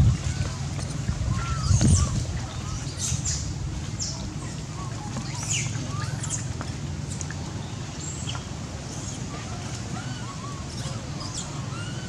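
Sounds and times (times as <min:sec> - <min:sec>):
animal chirps and squeaks: 0:04.8 - 0:07.3, 0:10.0 - 0:12.0.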